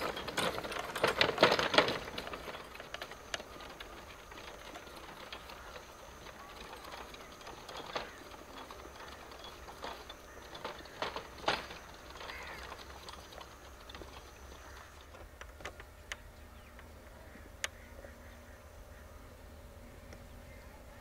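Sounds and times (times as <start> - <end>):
wooden cart clattering: 0.0 - 15.9
donkey hooves on dirt: 0.0 - 16.0.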